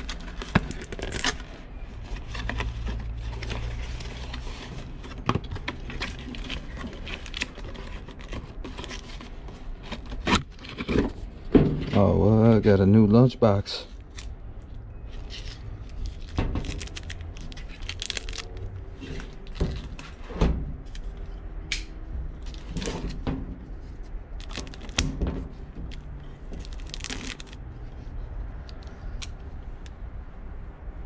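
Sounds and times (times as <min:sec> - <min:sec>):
plastic wrapping crinkling and tearing: 0:00.0 - 0:11.1, 0:15.1 - 0:20.0, 0:24.4 - 0:25.2, 0:25.9 - 0:27.6.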